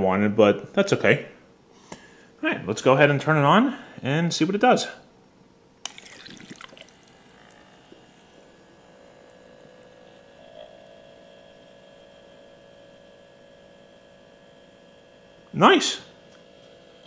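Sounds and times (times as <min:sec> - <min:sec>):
small pump humming: 0:05.8 - 0:17.0
water trickling: 0:05.9 - 0:08.0.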